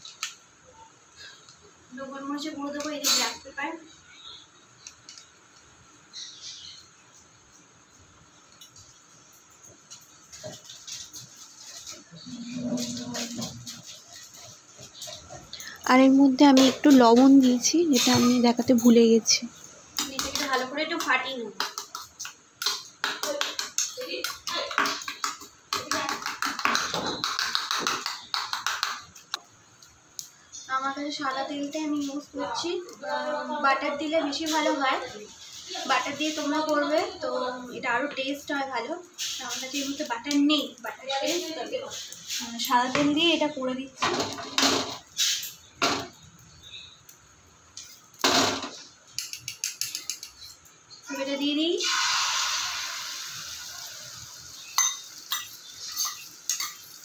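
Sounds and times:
frying pan scraping on metal grate: 0:10.9 - 0:15.3
metal spoon clinking in a bowl: 0:49.2 - 0:50.7, 0:54.7 - 0:57.0.

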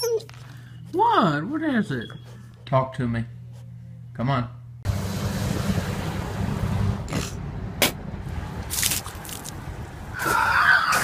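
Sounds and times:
outdoor wash noise: 0:04.9 - 0:11.0.

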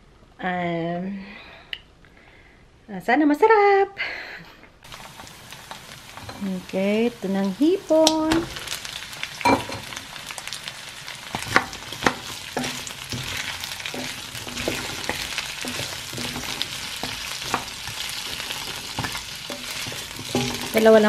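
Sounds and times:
spatula scraping and knocking pan: 0:04.9 - 0:06.6, 0:11.2 - 0:21.0
shrimp sizzling in hot oil: 0:04.9 - 0:21.0.

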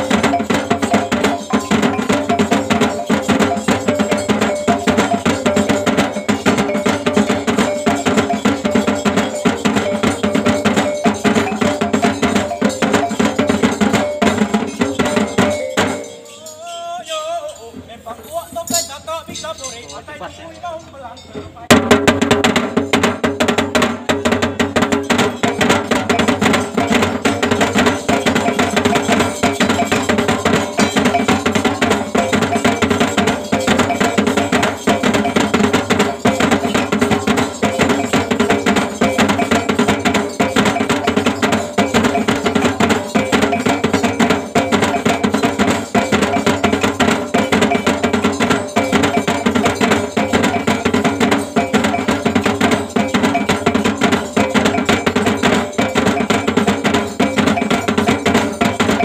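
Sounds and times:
kettle gongs struck with sticks: 0:21.7 - 0:59.0.

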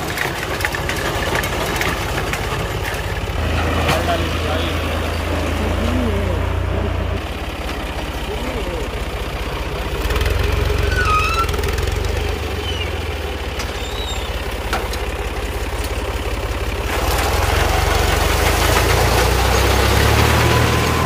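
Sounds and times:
tractor diesel engine running: 0:00.0 - 0:21.0.

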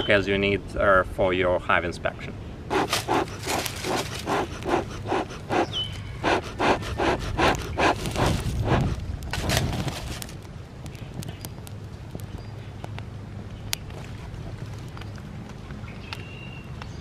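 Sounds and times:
bellows puffing air: 0:02.7 - 0:09.8.

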